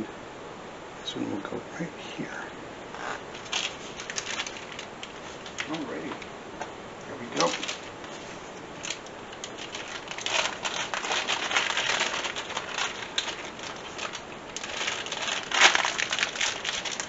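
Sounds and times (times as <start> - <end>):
plastic packaging crinkling: 3.0 - 6.3, 7.2 - 17.0.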